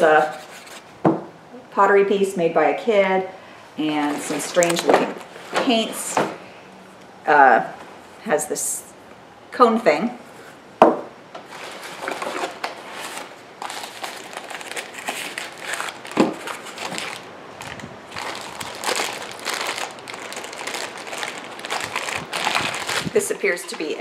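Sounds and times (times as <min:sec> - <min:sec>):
paper and plastic bag crinkling: 0:04.0 - 0:06.0, 0:11.5 - 0:24.0.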